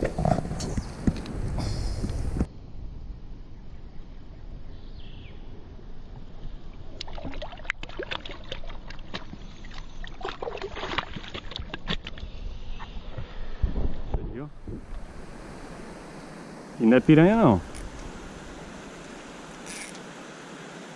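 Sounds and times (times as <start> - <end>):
hands splashing in river water: 7.0 - 12.2.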